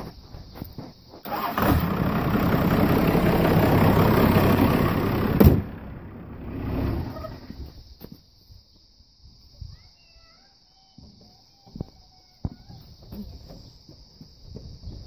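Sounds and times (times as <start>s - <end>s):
engine shutoff click: 1.3s - 7.3s
diesel engine running loudly: 1.3s - 7.5s.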